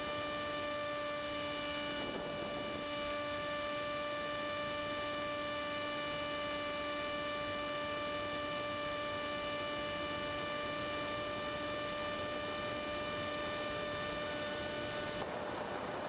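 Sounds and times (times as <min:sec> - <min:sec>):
model plane motor hum: 0:00.0 - 0:15.4
rushing wind: 0:13.2 - 0:16.0.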